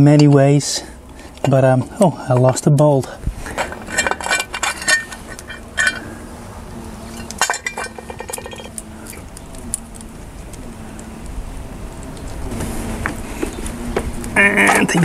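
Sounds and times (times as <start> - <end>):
wrench and bolts clinking: 3.5 - 6.1, 7.1 - 9.2.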